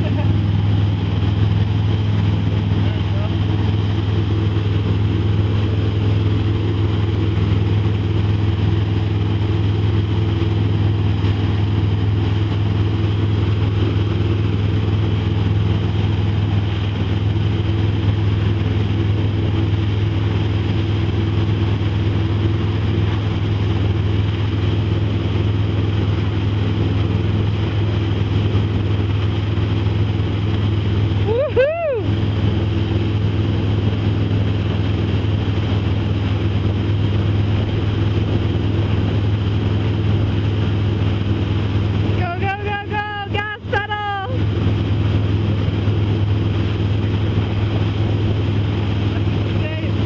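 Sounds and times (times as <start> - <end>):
churning wake water rushing: 0.0 - 50.0
motorboat engine running: 0.0 - 50.0.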